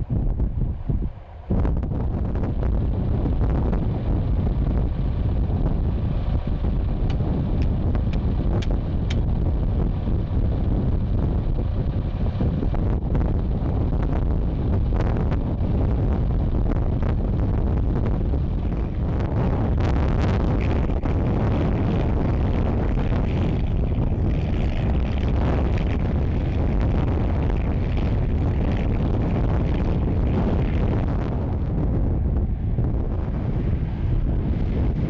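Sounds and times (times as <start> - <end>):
tractor engine running under load: 0.0 - 35.0
wind rumbling on microphone: 0.0 - 35.0.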